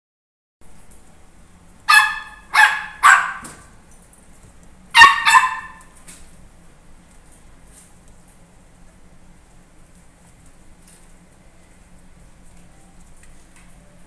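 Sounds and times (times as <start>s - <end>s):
puppy yapping: 1.9s - 3.7s, 5.0s - 6.0s.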